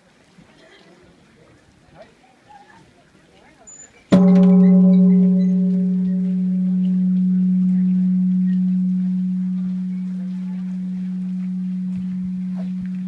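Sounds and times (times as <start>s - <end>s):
temple bell humming: 4.1s - 13.0s.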